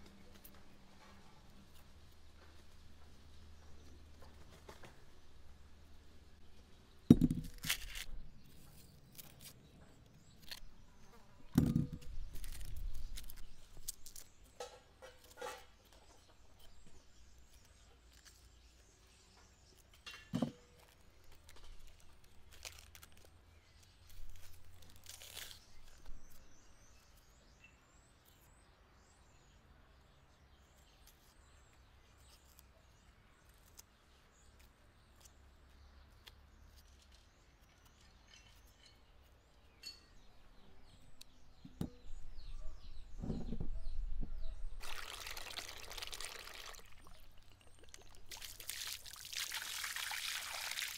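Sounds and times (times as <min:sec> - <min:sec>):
faint birdsong: 0:00.0 - 0:50.9
water pouring into glass bowl: 0:44.8 - 0:50.9.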